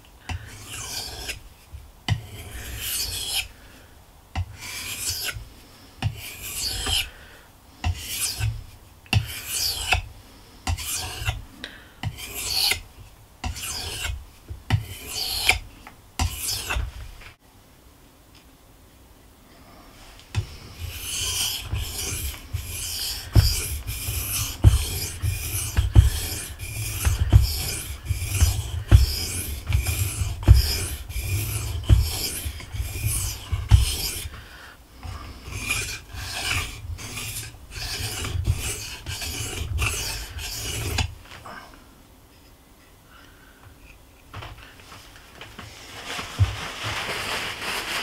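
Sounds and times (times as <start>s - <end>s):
knife scraping on whetstone: 0.3s - 1.4s, 2.1s - 3.5s, 4.4s - 5.4s, 6.0s - 7.2s, 7.8s - 11.4s, 12.0s - 12.8s, 13.4s - 15.6s, 16.2s - 17.0s, 20.4s - 34.4s, 35.0s - 41.2s
dull knocks: 23.3s - 31.3s.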